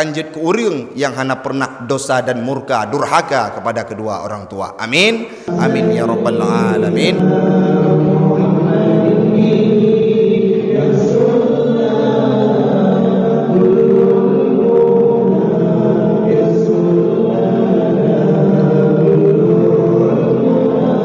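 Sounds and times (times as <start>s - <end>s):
voices singing together: 5.4s - 21.0s.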